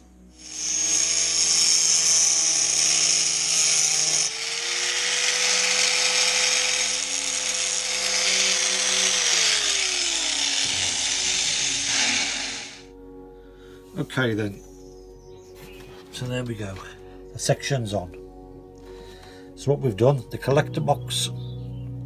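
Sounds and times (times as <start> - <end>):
angle grinder cutting metal: 0.3 - 12.9.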